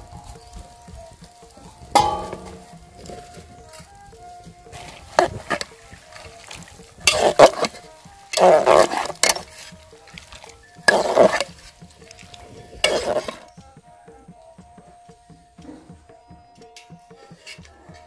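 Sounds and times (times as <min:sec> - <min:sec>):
metal spoon scraping cooking pot: 0:07.0 - 0:09.8, 0:10.8 - 0:11.6, 0:12.8 - 0:13.5.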